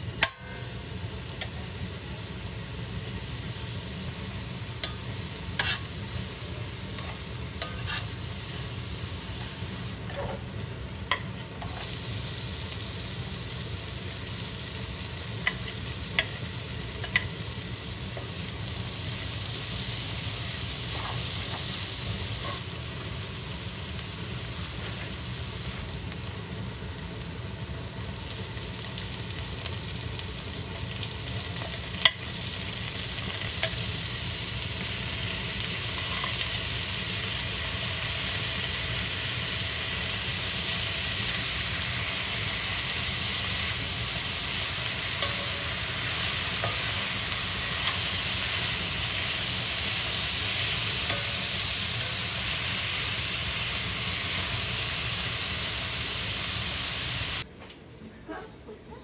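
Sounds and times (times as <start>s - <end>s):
food sizzling in a pan: 0.0s - 57.5s.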